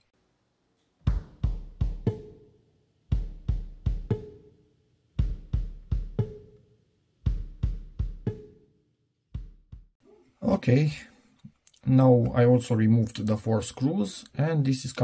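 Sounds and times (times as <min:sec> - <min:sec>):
drum beat with deep bass drum: 0:01.1 - 0:02.4, 0:03.1 - 0:04.4, 0:05.2 - 0:06.5, 0:07.3 - 0:08.6, 0:09.4 - 0:10.0.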